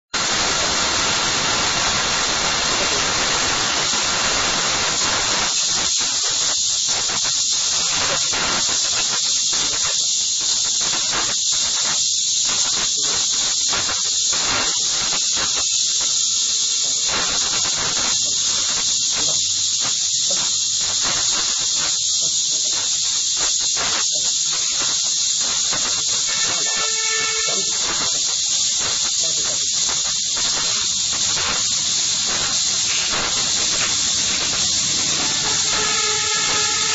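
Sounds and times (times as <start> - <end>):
recording hiss: 0.0 - 36.9
brief pitched tone: 26.3 - 27.8.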